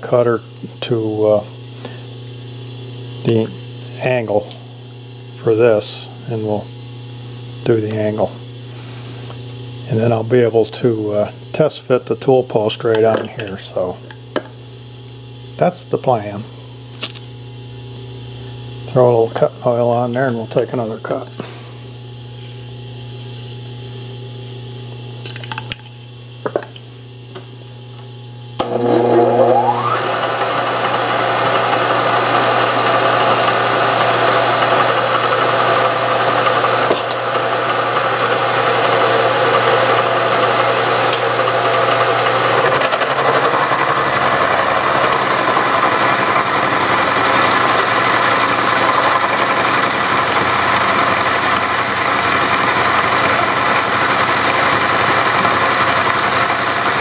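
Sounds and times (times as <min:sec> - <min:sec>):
milling machine spindle humming: 0:17.5 - 0:57.0
cutter whining into metal: 0:28.6 - 0:57.0.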